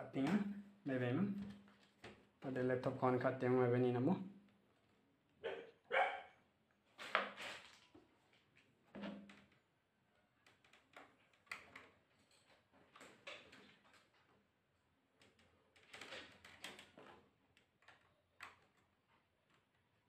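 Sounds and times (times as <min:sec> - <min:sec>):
faint clicks and knocks: 0:15.1 - 0:19.9.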